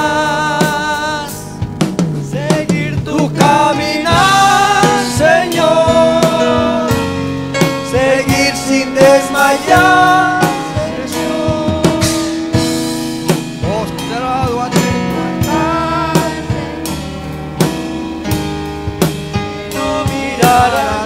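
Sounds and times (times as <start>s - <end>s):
person singing: 0.0s - 1.6s, 2.3s - 7.1s, 7.9s - 12.5s, 13.6s - 17.0s, 19.8s - 21.0s
drum kit steady beat: 0.0s - 21.0s
electric bass: 0.0s - 21.0s
electric keyboard: 0.0s - 21.0s.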